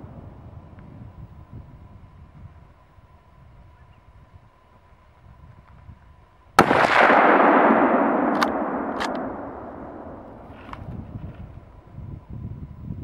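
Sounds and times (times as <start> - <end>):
rifle shot with rolling echo: 6.6 - 11.2.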